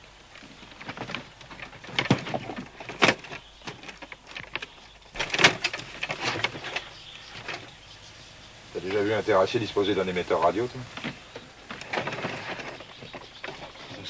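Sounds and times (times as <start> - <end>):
wooden crates knocking and scraping: 0.3 - 7.7, 10.7 - 14.0.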